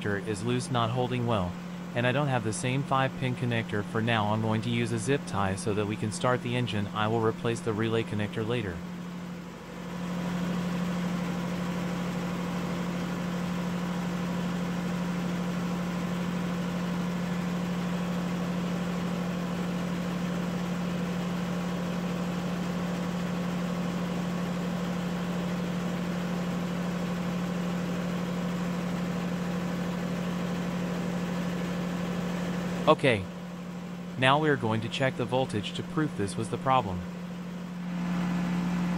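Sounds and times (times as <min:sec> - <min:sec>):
machine hum: 0:00.0 - 0:38.9.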